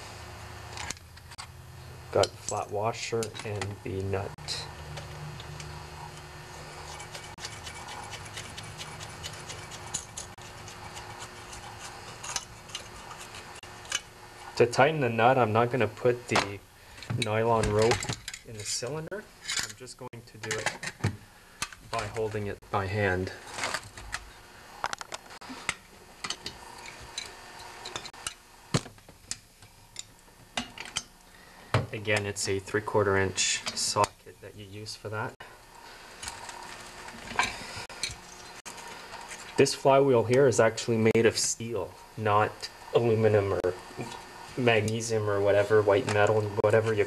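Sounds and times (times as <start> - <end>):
low steady hum: 0.0 - 47.0.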